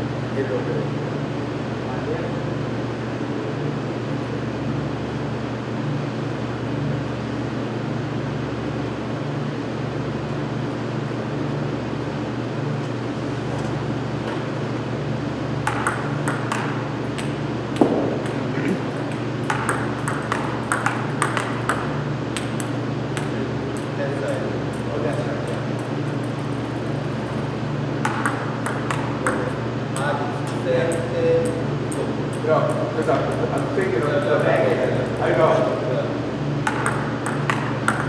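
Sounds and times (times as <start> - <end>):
steady low hum: 0.0 - 38.0
table tennis ball clicking: 15.7 - 18.4, 19.1 - 21.8, 28.0 - 29.5, 36.6 - 38.0
loud knock: 17.8 - 18.8.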